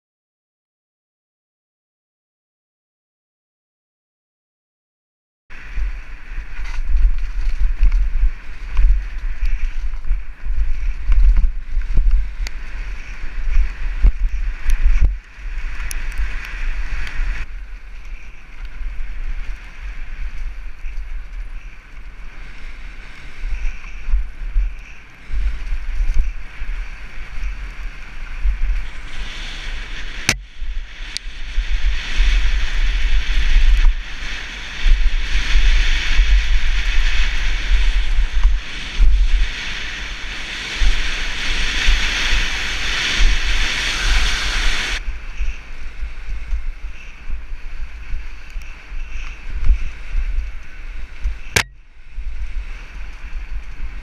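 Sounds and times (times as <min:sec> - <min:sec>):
mountain bike rumbling and rattling: 0:05.5 - 0:54.0
wind buffeting microphone: 0:05.5 - 0:54.0.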